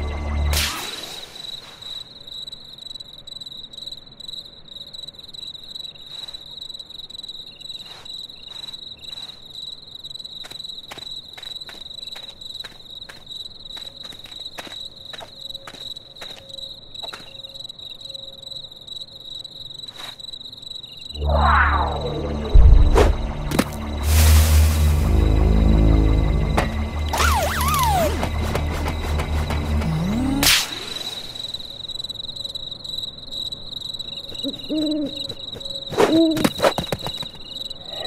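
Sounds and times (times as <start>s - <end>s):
crickets chirping: 0.0s - 38.0s
loud tone: 21.2s - 22.9s.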